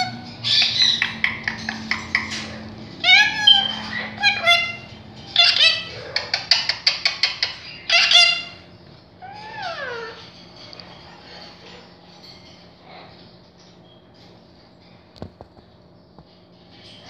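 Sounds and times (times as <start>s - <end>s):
parakeet calling: 0.0s - 11.9s.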